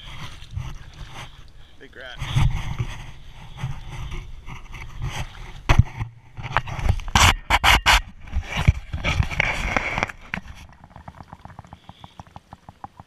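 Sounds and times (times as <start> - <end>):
wooden stake knocking and scraping: 2.2 - 10.8.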